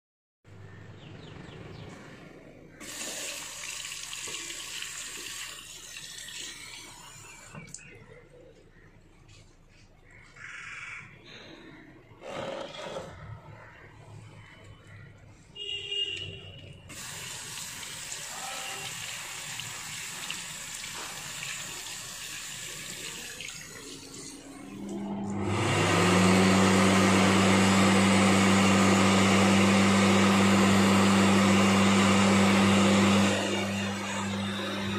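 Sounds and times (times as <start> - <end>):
water running from a tap: 2.8 - 7.8, 16.9 - 24.8
electric hand dryer blowing: 16.9 - 22.6, 24.0 - 34.9.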